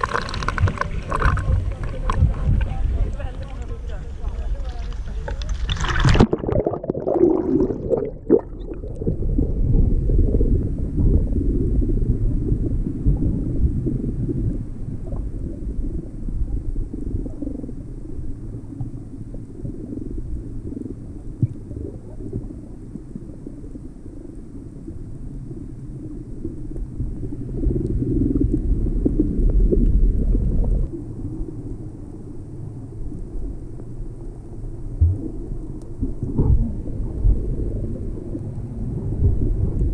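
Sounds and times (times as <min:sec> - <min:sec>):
muffled underwater rumble: 0:00.0 - 0:39.9
camera plunging into water: 0:04.9 - 0:08.7.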